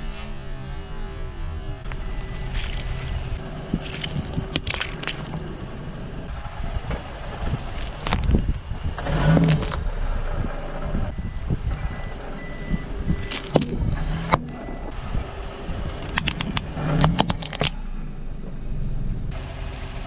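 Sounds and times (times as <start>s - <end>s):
low vehicle rumble: 0.0s - 20.0s
tyre crunching wooden roller: 1.9s - 5.4s, 7.4s - 8.4s
sharp cracks and pops: 3.8s - 5.4s, 7.6s - 8.4s, 16.0s - 17.8s.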